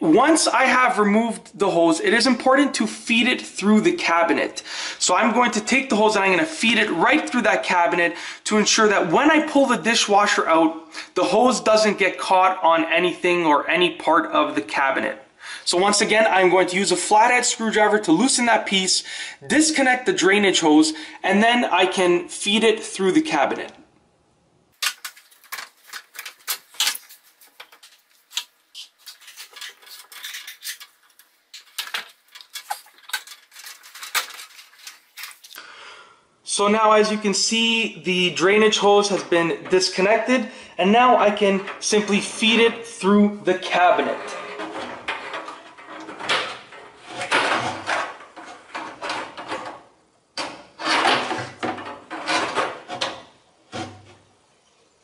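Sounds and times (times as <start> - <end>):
hose rubbing and scraping: 25.0 - 35.6, 43.6 - 49.6, 50.7 - 53.0.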